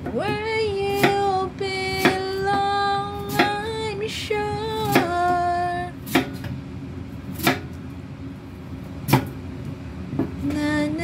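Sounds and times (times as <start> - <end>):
woman singing pop song: 0.0 - 6.0, 10.4 - 11.0
knife chopping on wooden board: 1.0 - 1.2, 2.0 - 2.3, 3.3 - 3.6, 4.9 - 5.2, 6.0 - 6.5, 7.4 - 7.7, 9.1 - 9.4.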